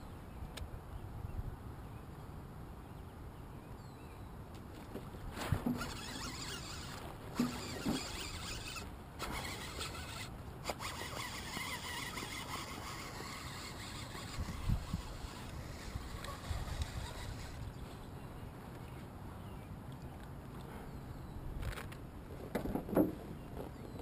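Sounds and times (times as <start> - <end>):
fishing reel clicking: 5.7 - 17.6.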